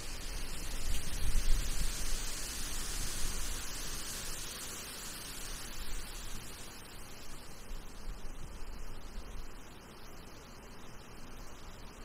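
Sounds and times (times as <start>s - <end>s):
wind rumble on microphone: 0.0s - 4.7s.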